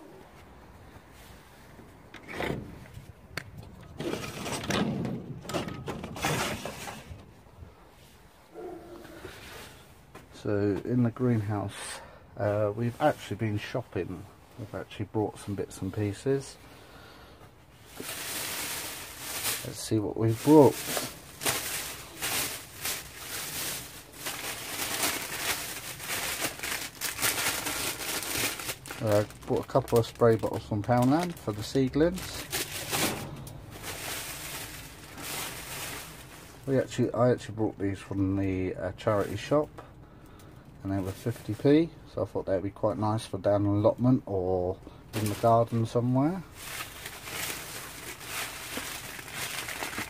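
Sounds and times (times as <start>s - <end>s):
sliding door scraping and rattling: 2.2s - 2.9s, 3.9s - 7.2s
plastic bag rustling: 5.3s - 7.5s, 17.7s - 37.2s, 39.0s - 39.7s, 41.0s - 41.9s, 45.1s - 50.0s
plastic packaging crackling: 17.8s - 37.1s, 41.0s - 41.8s, 45.1s - 50.0s.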